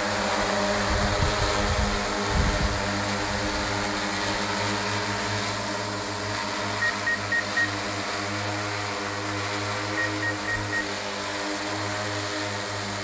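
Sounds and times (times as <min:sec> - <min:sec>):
drone propellers humming: 0:00.0 - 0:13.0
short high beeps: 0:06.8 - 0:07.7, 0:10.0 - 0:10.9.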